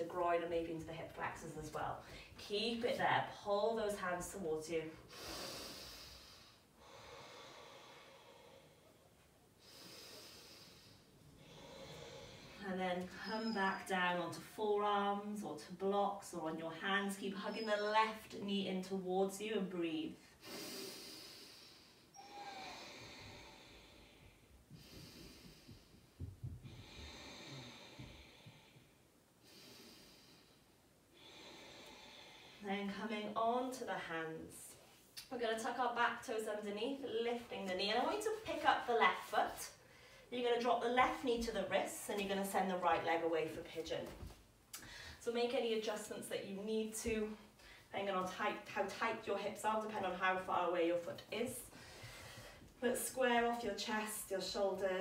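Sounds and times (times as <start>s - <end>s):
person breathing deeply: 5.1s - 12.6s, 20.3s - 32.6s
soft low thumps: 24.3s - 28.9s.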